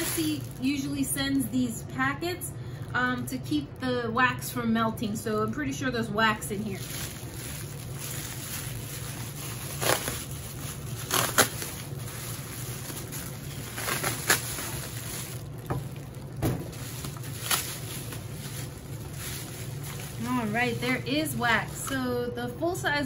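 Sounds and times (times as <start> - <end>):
aluminium foil crinkling: 0.0 - 1.0, 6.4 - 22.0
low steady hum: 0.0 - 23.0.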